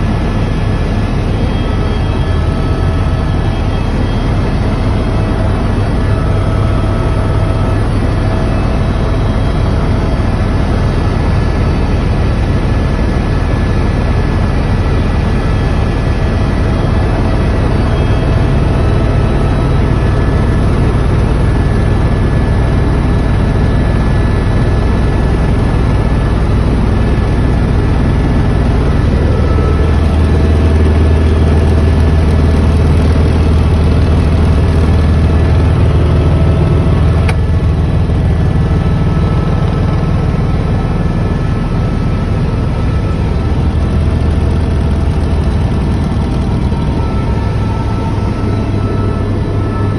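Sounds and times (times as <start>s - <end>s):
helicopter rotor drone: 0.0s - 49.9s
turbine whine: 0.0s - 49.9s.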